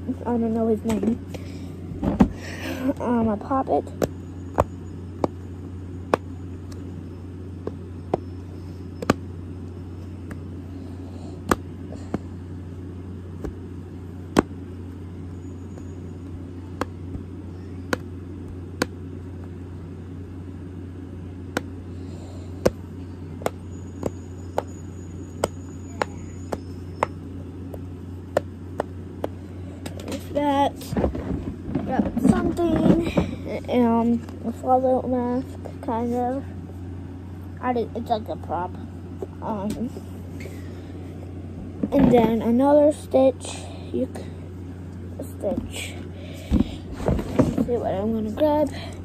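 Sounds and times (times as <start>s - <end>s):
steady low hum: 0.0s - 49.0s.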